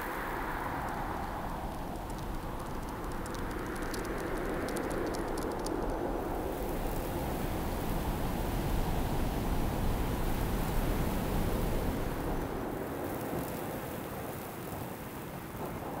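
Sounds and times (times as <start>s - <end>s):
faint high ticks: 0.0s - 6.1s.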